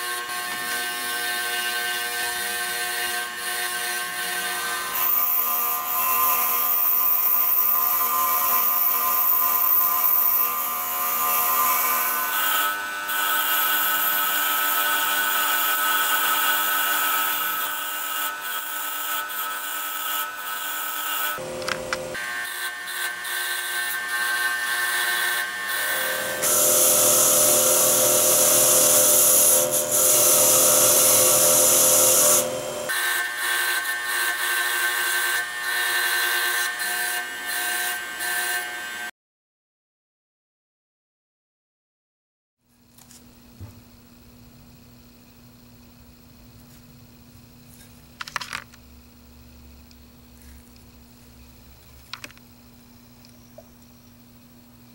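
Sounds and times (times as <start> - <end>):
bench grinder motor whine: 20.7 - 39.1.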